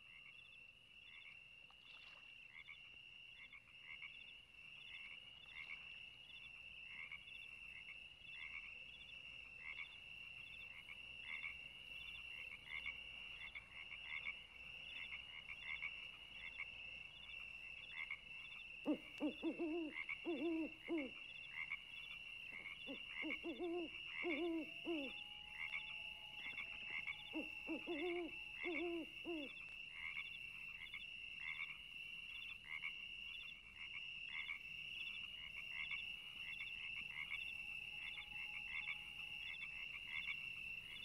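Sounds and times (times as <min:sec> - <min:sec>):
lower repeated pitched calls: 0:22.9 - 0:29.6.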